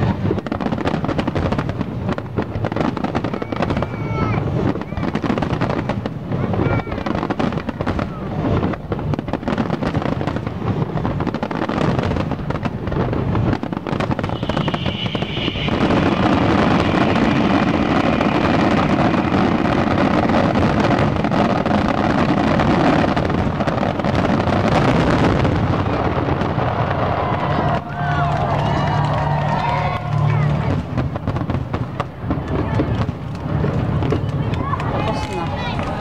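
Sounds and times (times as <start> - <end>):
fireworks bursting: 0.0 - 36.0.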